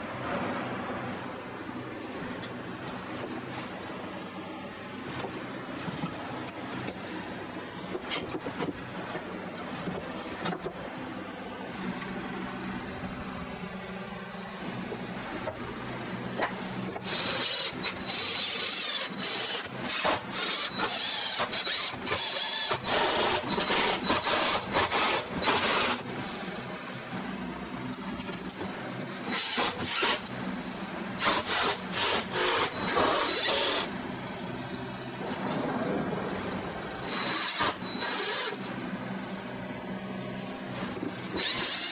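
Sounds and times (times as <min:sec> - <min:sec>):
impact driver driving screws: 0:41.4 - 0:41.9.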